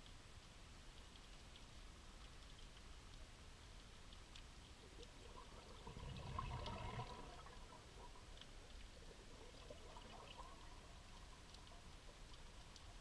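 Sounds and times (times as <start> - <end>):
faint clicks: 0.0 - 13.0
exhaled bubbles gurgling underwater: 4.7 - 13.0.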